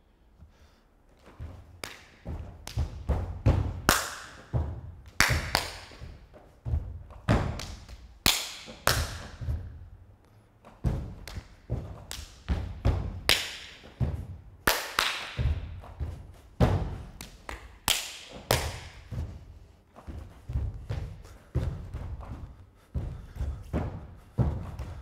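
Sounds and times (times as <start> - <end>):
feet stamping on studio floor: 0.4 - 14.7, 15.3 - 25.0.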